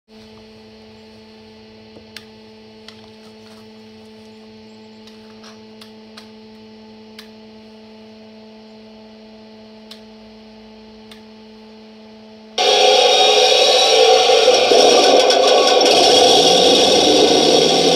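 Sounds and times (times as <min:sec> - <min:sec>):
steady electrical hum: 0:05.9 - 0:17.9
sudden loud noise: 0:12.6 - 0:17.9.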